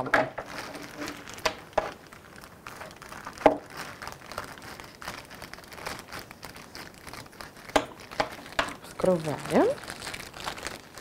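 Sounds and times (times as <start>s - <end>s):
plastic bag crinkling: 0.4s - 11.0s
scissors cutting plastic: 6.8s - 11.0s.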